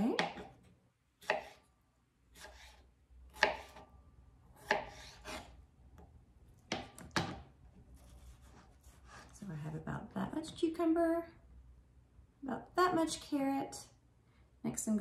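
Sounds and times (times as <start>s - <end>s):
knife slicing on cutting board: 1.2s - 1.7s, 2.3s - 3.8s, 4.6s - 5.6s.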